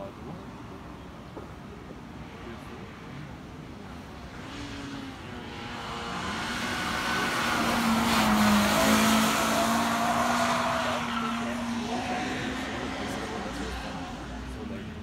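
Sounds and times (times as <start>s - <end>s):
race car engine accelerating: 4.4s - 14.6s.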